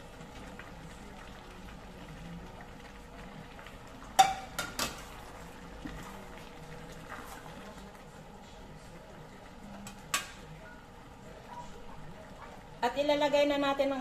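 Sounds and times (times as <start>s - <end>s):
pot bubbling: 0.0s - 14.0s
plate and spatula clinking on pot: 4.2s - 5.0s.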